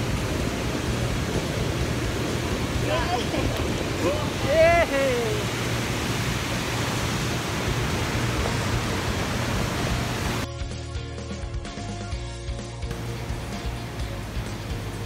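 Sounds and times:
waterfall rushing: 0.0 - 10.5, 12.9 - 15.0
background music: 10.4 - 15.0.

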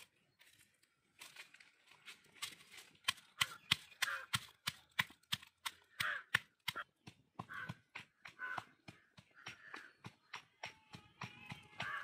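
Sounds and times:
pestle pounding in stone mortar: 3.0 - 12.0.

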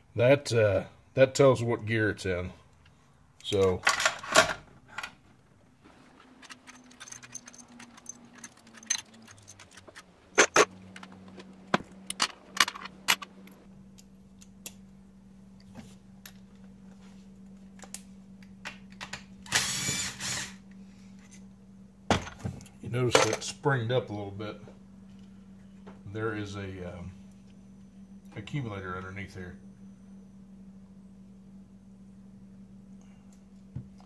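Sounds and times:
metal parts clinking: 5.9 - 13.7
cordless power driver spinning: 19.5 - 20.6.

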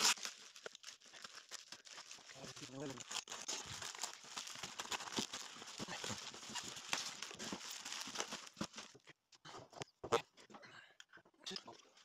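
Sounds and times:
plastic bag crinkling: 0.0 - 9.0.

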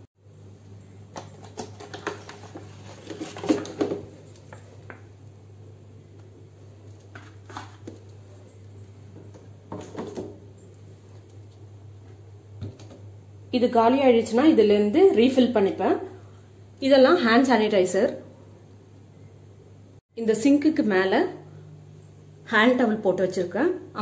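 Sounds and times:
steady low hum: 18.2 - 24.0.

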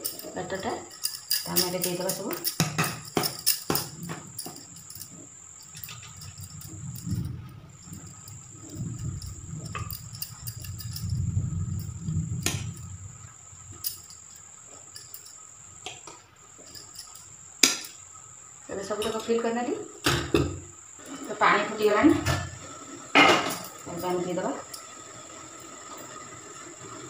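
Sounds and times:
cricket chirring: 0.0 - 27.0
low rumble: 6.2 - 14.2.

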